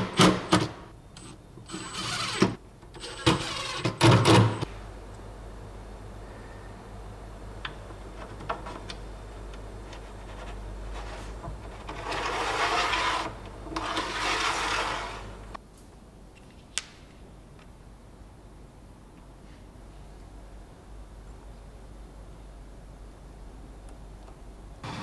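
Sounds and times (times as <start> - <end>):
wood rubbing and sliding: 9.9 - 15.5.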